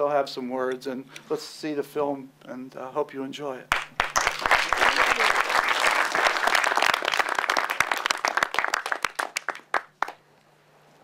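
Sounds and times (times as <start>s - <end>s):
audience applauding: 3.7s - 10.2s.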